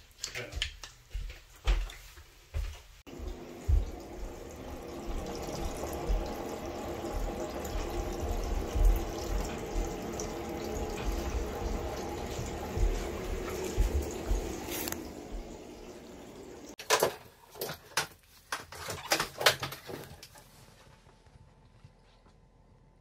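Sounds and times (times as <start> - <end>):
water draining through pipes: 3.1 - 17.0.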